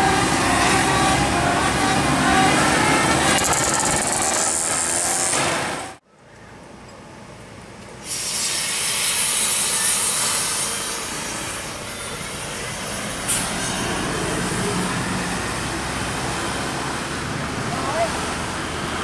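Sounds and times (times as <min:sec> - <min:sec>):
coach engine and road noise: 0:00.0 - 0:19.0
air brake hiss: 0:08.0 - 0:11.4.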